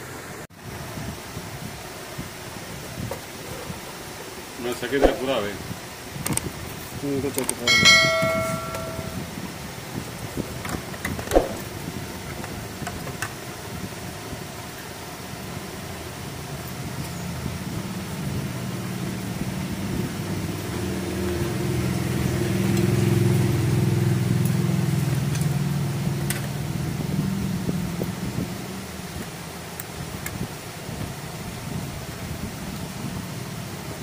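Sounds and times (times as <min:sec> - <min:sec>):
vehicle engine passing by: 0:17.4 - 0:28.0.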